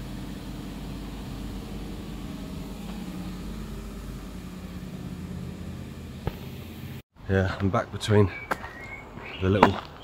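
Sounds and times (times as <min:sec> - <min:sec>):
machinery humming: 0:00.0 - 0:07.0.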